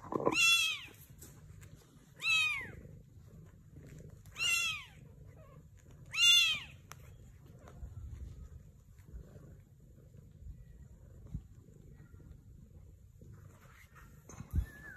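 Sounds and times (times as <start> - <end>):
kittens mewing: 0.0 - 1.0.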